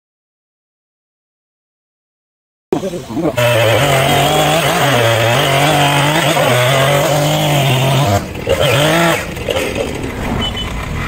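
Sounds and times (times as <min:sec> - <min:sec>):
chainsaw cutting log: 0:03.2 - 0:10.1.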